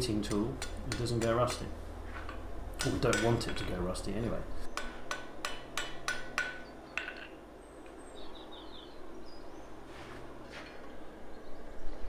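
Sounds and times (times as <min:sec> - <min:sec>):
hammer striking metal on anvil: 0:02.8 - 0:03.7, 0:04.8 - 0:07.3
faint bird chirps: 0:07.6 - 0:09.8.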